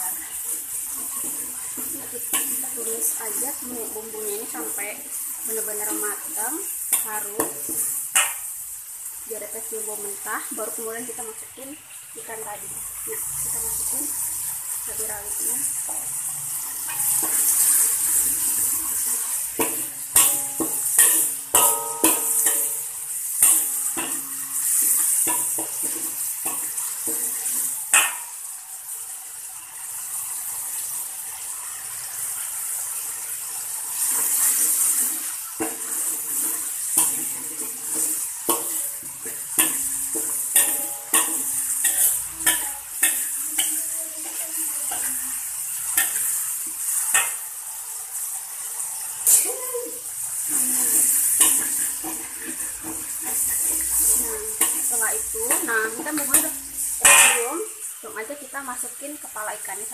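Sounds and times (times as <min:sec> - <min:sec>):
paste sizzling in hot oil: 0:00.0 - 0:59.9
metal spatula scraping pan: 0:00.1 - 0:08.6, 0:13.1 - 0:28.4, 0:33.9 - 0:47.6, 0:49.1 - 0:49.6, 0:50.3 - 0:57.8.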